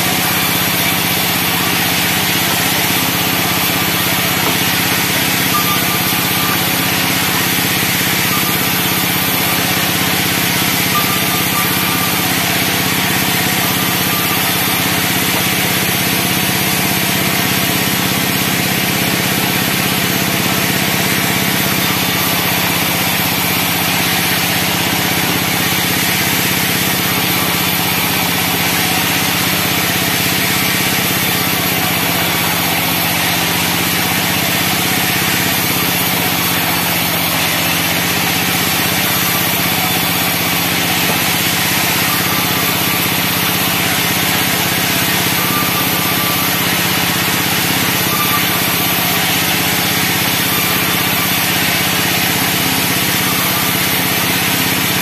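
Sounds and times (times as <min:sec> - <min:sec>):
band saw blade cutting wood: 0:00.0 - 0:55.0
saw drive drone: 0:00.0 - 0:55.0.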